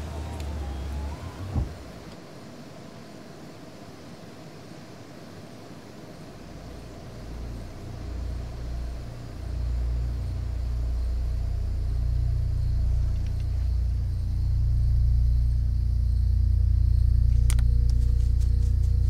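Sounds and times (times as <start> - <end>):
deep low rumbling drone: 6.5 - 19.0.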